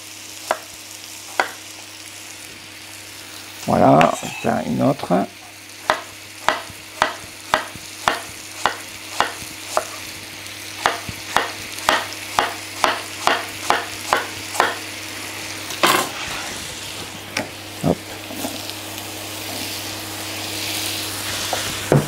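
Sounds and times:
sizzling in a frying pan: 0.0s - 22.0s
knife tapping on cutting board: 1.4s - 1.6s, 5.9s - 9.9s, 10.8s - 14.8s
scrape on cutting board: 15.8s - 17.0s.

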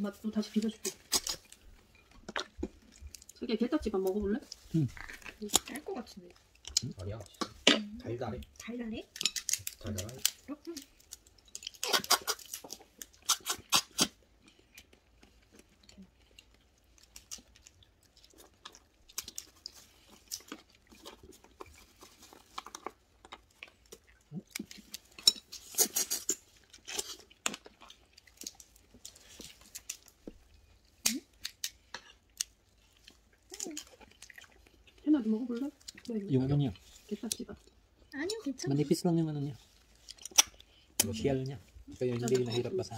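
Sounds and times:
chewing: 0.4s - 42.9s
crab shells cracking: 0.6s - 3.4s, 4.4s - 35.0s, 39.6s - 42.9s.

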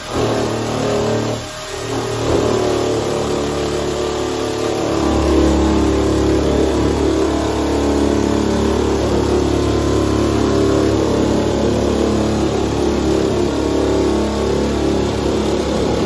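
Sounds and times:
electric nibbler cutting sheet steel: 0.0s - 16.0s.

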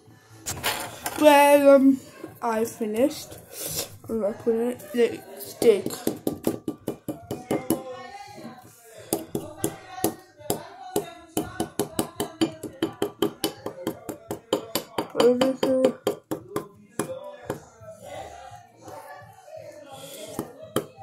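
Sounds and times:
toy hammer tapping plaster: 5.6s - 7.9s, 9.1s - 17.6s.

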